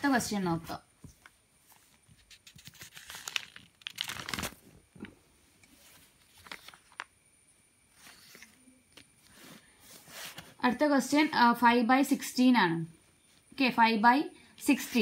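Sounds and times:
paper pages rustling: 1.1 - 4.7, 5.6 - 7.1, 7.9 - 8.6.

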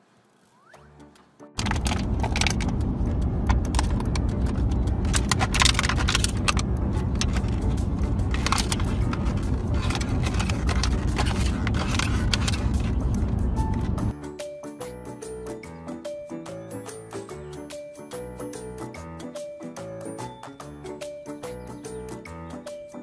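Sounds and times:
car road rumble: 1.6 - 14.1.

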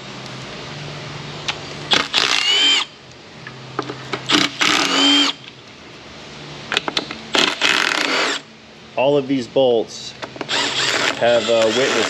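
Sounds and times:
impact gun motor whine: 1.9 - 3.0, 4.1 - 5.5, 7.3 - 8.5, 10.4 - 12.0.

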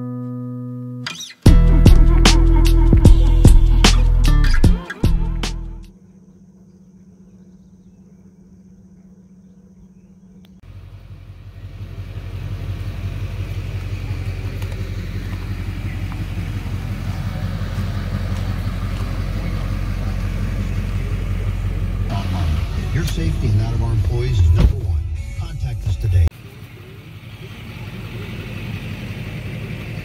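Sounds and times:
vehicle engine idling: 1.4 - 30.0
faint steady hum: 5.9 - 12.7.

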